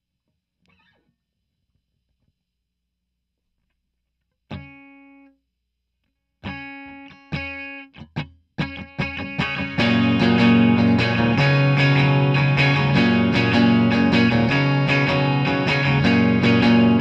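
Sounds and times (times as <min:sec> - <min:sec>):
electric guitar strumming chords: 0:06.4 - 0:17.0.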